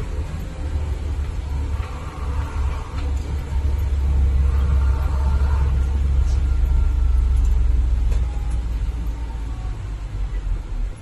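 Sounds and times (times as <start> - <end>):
vehicle rumble from inside cab: 0.0 - 11.0.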